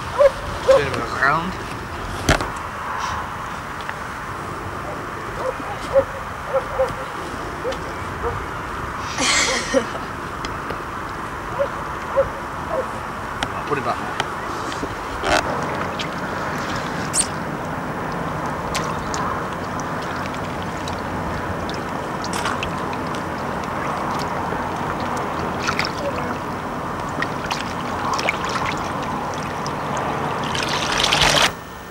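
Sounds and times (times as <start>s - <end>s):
water sloshing and trickling: 14.7s - 31.5s.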